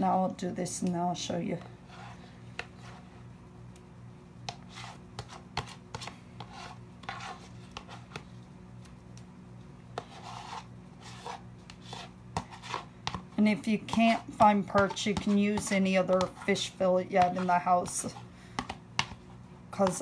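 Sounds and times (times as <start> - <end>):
spoon scraping a bowl: 4.5 - 8.2.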